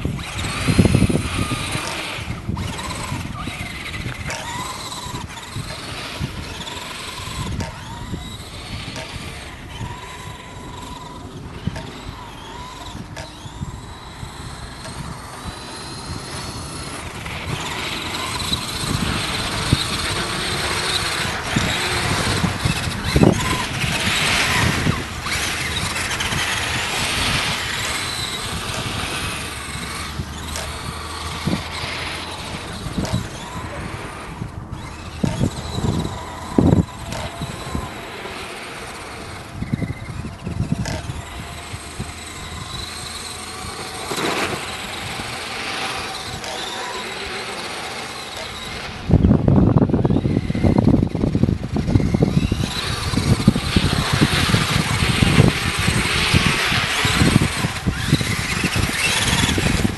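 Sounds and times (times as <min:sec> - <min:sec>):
toy truck motor whining: 0:00.0 - 0:59.9
tyres running on snowy ice: 0:00.0 - 0:59.9.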